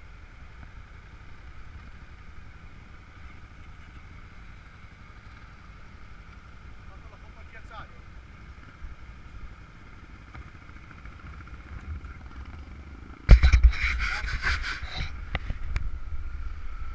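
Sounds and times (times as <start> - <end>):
motorcycle engine idling: 0.0 - 16.9
rough wind buffeting on microphone: 11.3 - 16.9.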